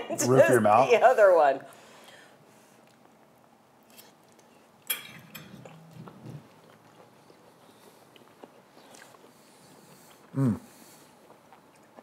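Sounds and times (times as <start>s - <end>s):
chewing and mouth sounds: 2.8s - 12.0s.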